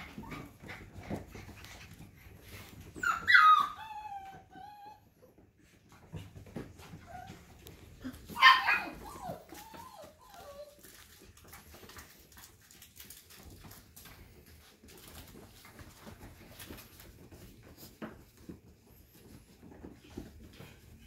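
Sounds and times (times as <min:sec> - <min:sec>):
puppies yipping and whining: 0:00.0 - 0:11.8
paws clicking on wooden floor: 0:00.0 - 0:21.0.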